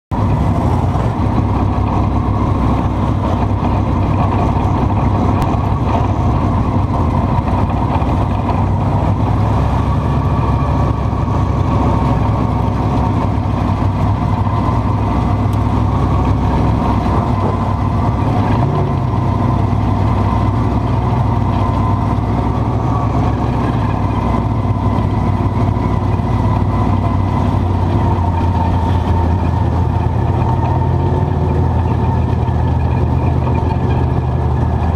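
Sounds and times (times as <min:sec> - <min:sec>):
race car engine at low revs: 0:00.1 - 0:34.9.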